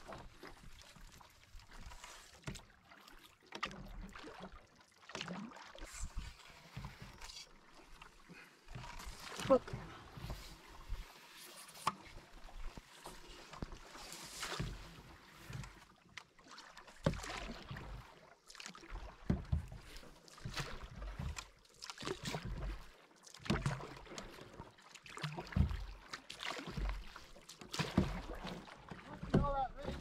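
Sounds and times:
canoe paddle splashing water: 0:00.0 - 0:30.0.

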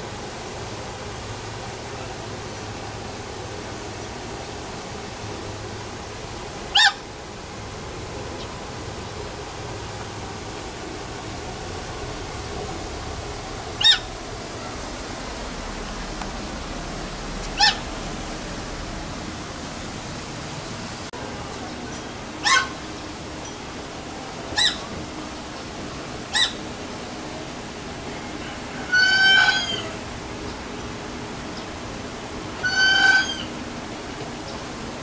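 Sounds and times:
goose honking: 0:17.5 - 0:17.9, 0:28.8 - 0:30.0, 0:32.6 - 0:33.5.

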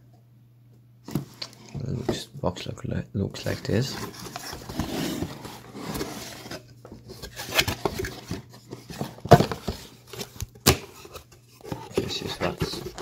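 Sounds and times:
cardboard scraping and rustling: 0:03.4 - 0:13.0.

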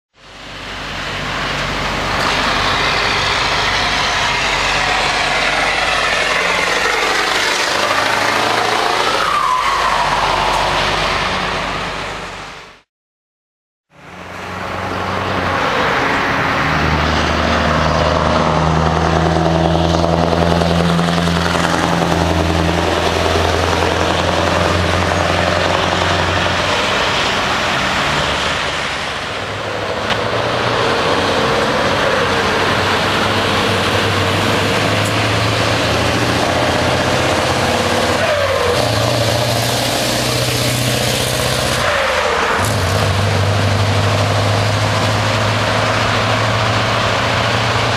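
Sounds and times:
truck engines driving past: 0:00.2 - 0:12.9, 0:13.9 - 0:47.9.

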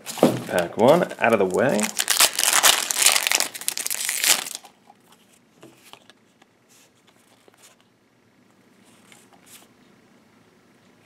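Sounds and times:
foil wrapper crinkling: 0:00.5 - 0:04.7.

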